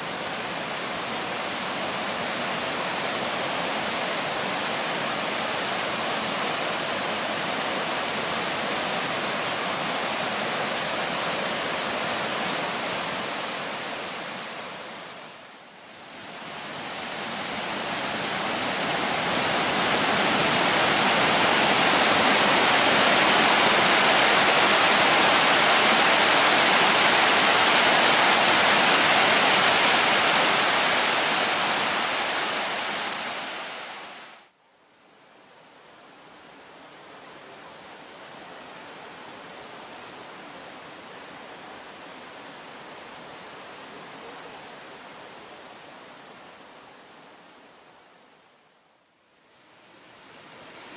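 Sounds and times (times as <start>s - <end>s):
waterfall rushing: 0.0s - 34.5s.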